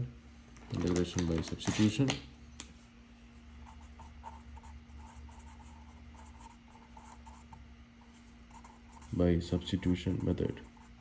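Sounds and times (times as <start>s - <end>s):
faint steady hum: 0.0s - 11.0s
pen scratching on paper: 3.6s - 11.0s.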